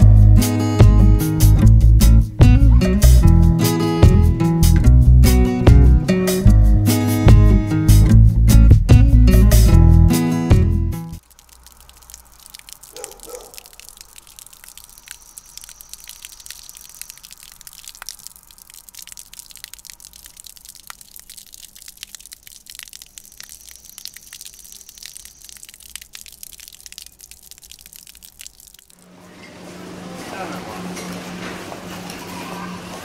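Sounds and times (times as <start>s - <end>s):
hose water spraying on plants: 11.2s - 29.0s.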